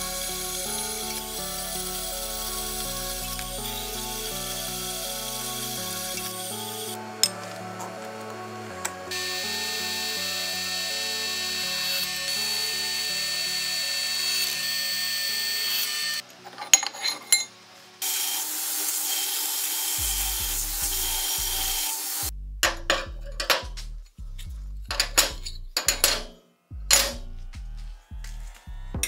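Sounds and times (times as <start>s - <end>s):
drill press boring steel: 0.0s - 7.0s, 9.1s - 16.2s, 16.8s - 22.2s
belt grinder grinding steel: 0.0s - 7.4s, 9.1s - 16.2s, 17.1s - 22.3s.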